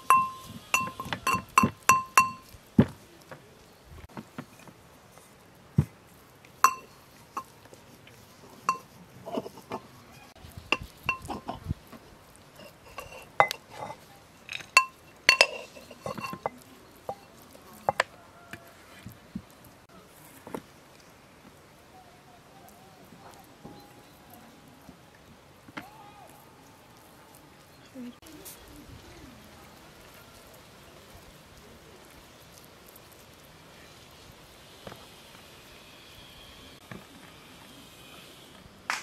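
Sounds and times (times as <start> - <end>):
pestle clinking in brass mortar: 0.0 - 2.5, 6.6 - 7.5, 8.7 - 9.8, 10.7 - 11.6, 12.6 - 18.1.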